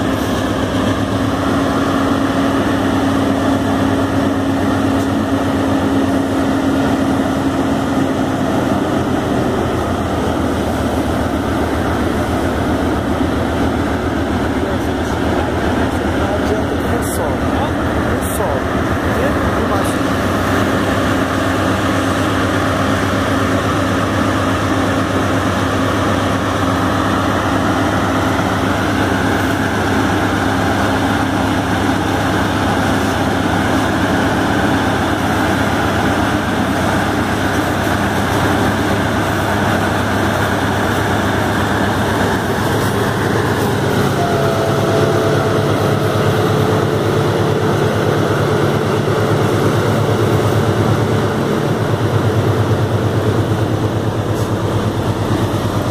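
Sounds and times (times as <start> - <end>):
diesel locomotive engine rumble: 0.0 - 55.9
thin whine: 39.3 - 55.9.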